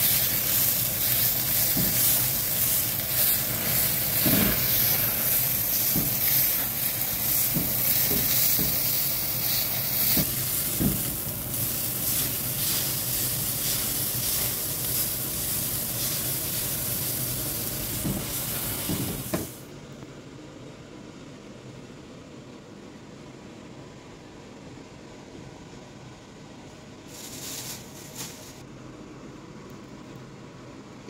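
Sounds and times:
steak sizzling on grill pan: 0:00.0 - 0:19.5.

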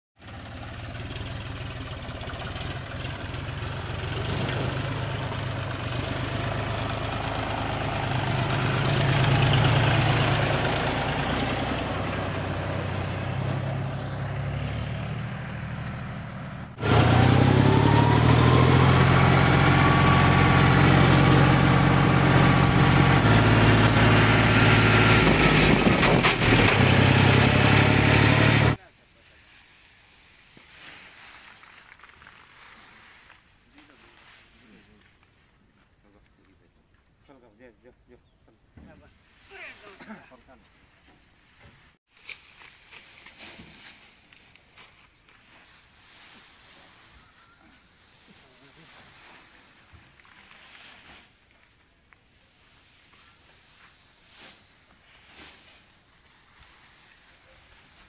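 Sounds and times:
tractor diesel engine running: 0:00.2 - 0:28.8.

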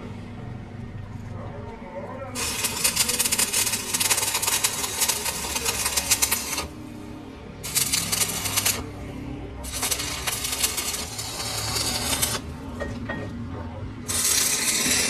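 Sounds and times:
lathe cutting metal scraping: 0:14.1 - 0:15.0.

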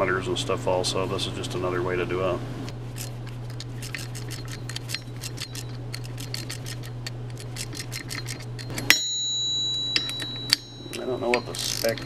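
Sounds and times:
steady low hum: 0:00.0 - 0:12.0
ratchet wrench clicking: 0:03.0 - 0:09.1, 0:09.9 - 0:12.0.

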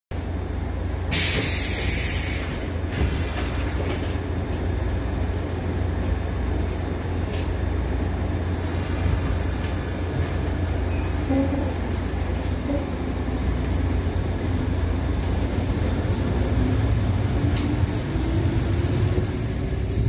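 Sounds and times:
train equipment humming: 0:00.1 - 0:20.0
loud burst of hiss: 0:01.1 - 0:02.6.

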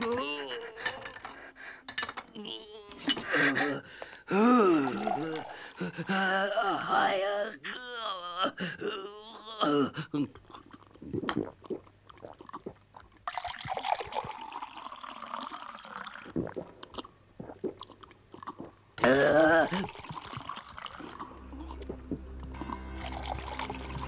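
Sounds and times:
man slurping and gulping water: 0:02.4 - 0:06.9, 0:09.6 - 0:24.0
swallowing clicks: 0:16.3 - 0:18.8
music: 0:21.2 - 0:24.0.

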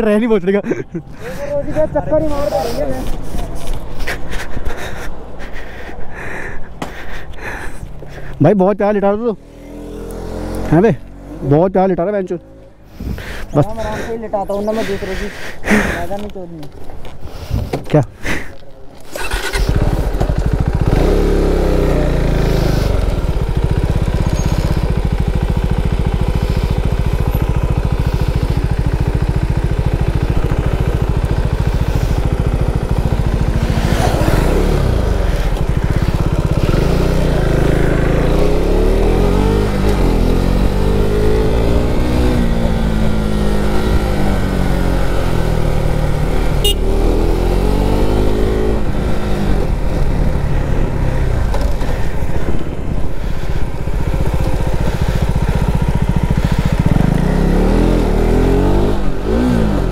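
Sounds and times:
motorcycle engine revving: 0:09.2 - 0:12.9, 0:19.0 - 0:59.9.

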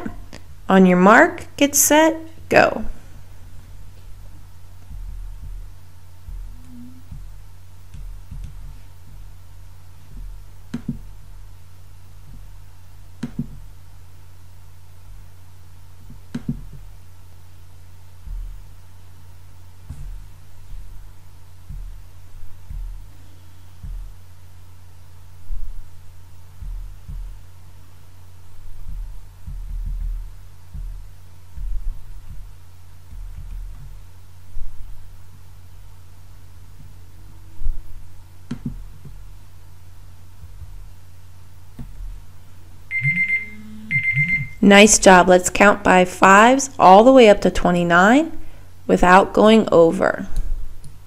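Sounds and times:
steady low hum: 0:00.0 - 0:51.0
dull low thumps and rumbles: 0:03.3 - 0:09.4, 0:18.2 - 0:18.9, 0:19.8 - 0:24.5, 0:25.4 - 0:34.0.

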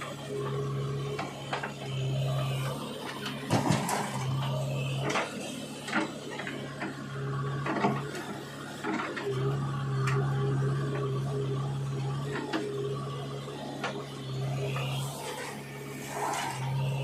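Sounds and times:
diesel engine running: 0:00.0 - 0:17.0
bucket and arm clanking: 0:03.1 - 0:09.3.

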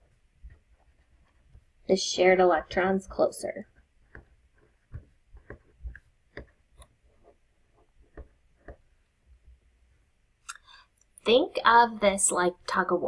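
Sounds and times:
marker tip tapping on paper: 0:04.0 - 0:06.9, 0:08.0 - 0:08.8.

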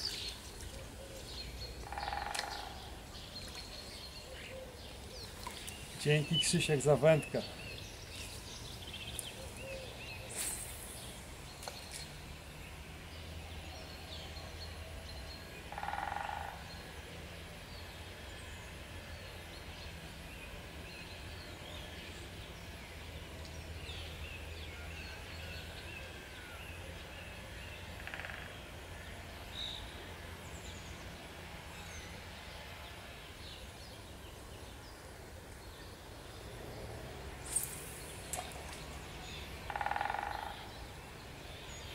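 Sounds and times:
flowing water: 0:00.0 - 0:01.8, 0:02.9 - 0:04.1, 0:37.4 - 0:39.7.

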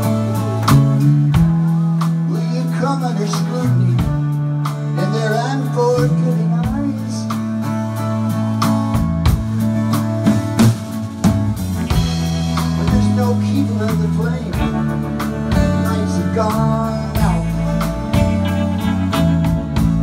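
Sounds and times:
bass guitar: 0:00.0 - 0:20.0
electric guitar with bent notes: 0:00.0 - 0:20.0
drum kit hits: 0:08.7 - 0:16.0.

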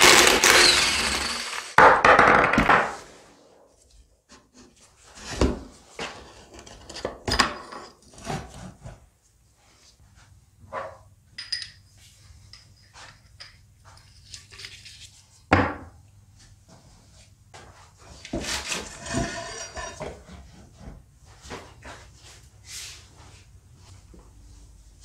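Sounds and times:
wheel scraping and rattling: 0:18.6 - 0:20.2.

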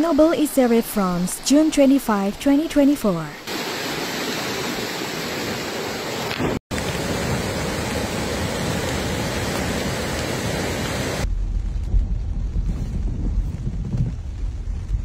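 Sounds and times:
floodwater rushing: 0:00.0 - 0:11.3.

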